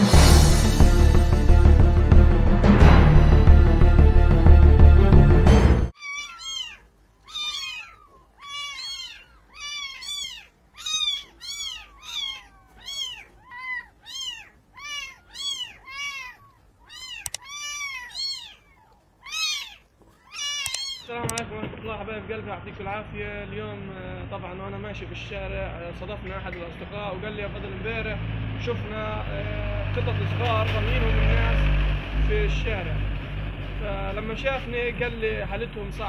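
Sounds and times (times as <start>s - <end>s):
intro music: 0.0s - 5.9s
kitten mewing: 6.0s - 21.4s.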